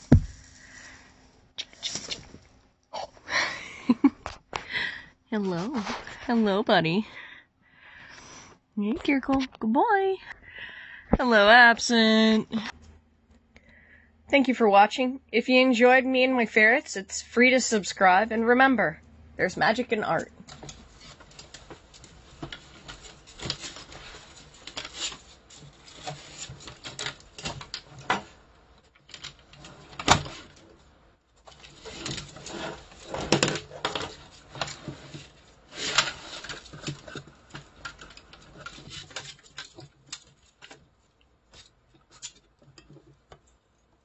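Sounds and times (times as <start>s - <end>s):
small items rattling: 20.0s - 30.8s, 31.4s - 43.3s
claws scrabbling on metal tins: 31.4s - 43.6s.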